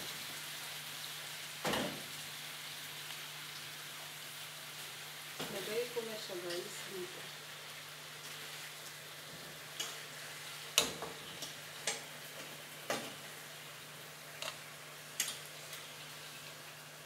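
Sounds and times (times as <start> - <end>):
faint sizzling: 0.0 - 17.0
metal tongs clicking on pan: 6.4 - 6.7, 9.8 - 10.0, 10.8 - 12.1, 14.4 - 14.6, 15.2 - 15.5.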